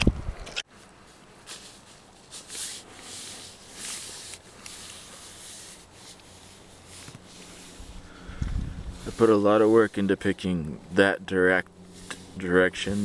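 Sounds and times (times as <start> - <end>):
camera handling rubbing and swishes: 0.4 - 9.9.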